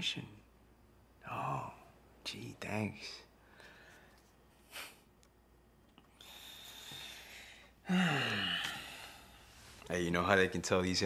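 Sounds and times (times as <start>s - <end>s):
person breathing: 3.4s - 5.1s, 6.1s - 9.9s
voiced sigh: 6.2s - 9.5s.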